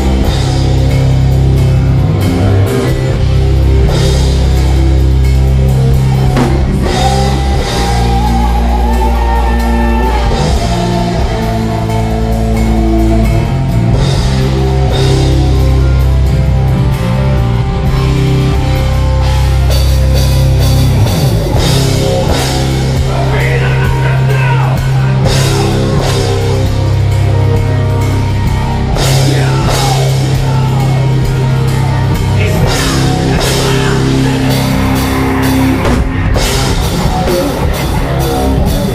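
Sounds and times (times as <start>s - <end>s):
bass guitar: 0.0s - 38.9s
drum kit: 0.0s - 38.9s
electric guitars: 0.0s - 38.9s
person singing: 5.7s - 16.1s, 28.9s - 36.4s.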